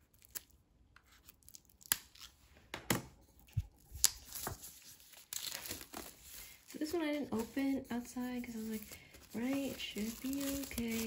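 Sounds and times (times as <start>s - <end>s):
plastic crinkling: 3.6s - 11.0s
plastic wrap ripping: 3.8s - 7.6s, 8.4s - 11.0s.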